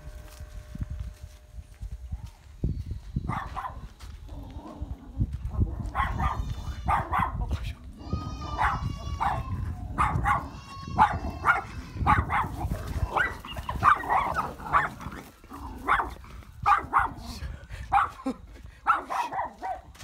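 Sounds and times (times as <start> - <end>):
dog barking: 3.3 - 3.9, 5.7 - 7.5, 8.4 - 20.0.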